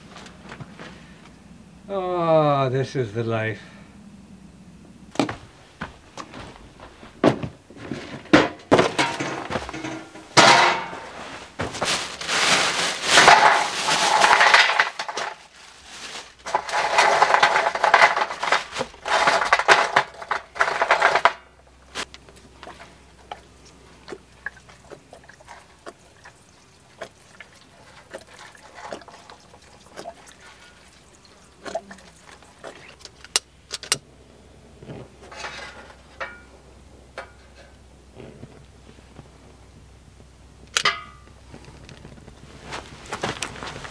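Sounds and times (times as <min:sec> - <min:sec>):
charcoal lumps clicking and knocking: 0:07.2 - 0:34.0, 0:34.8 - 0:39.2, 0:40.6 - 0:43.9
charcoal clattering into steel tray: 0:07.8 - 0:21.6, 0:35.2 - 0:36.5, 0:37.2 - 0:37.7, 0:40.8 - 0:41.3.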